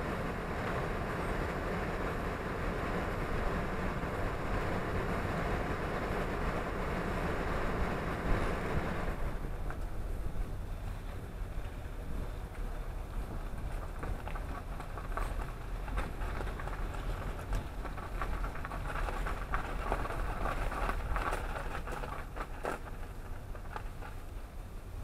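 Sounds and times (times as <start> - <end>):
car road rumble: 0.0 - 25.0
tyres crackling on snow: 0.0 - 25.0.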